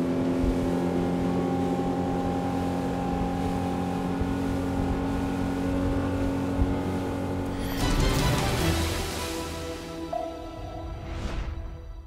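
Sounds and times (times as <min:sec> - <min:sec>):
outboard motor running: 0:00.0 - 0:07.5
water rushing past hull: 0:00.0 - 0:11.9.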